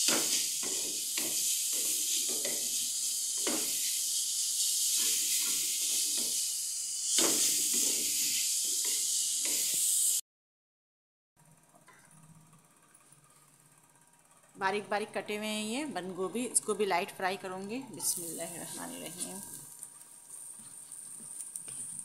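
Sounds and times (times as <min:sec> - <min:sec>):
carrot sizzling in hot oil: 0:00.0 - 0:10.2, 0:18.0 - 0:22.0
wooden spatula scraping a pan: 0:20.3 - 0:22.0.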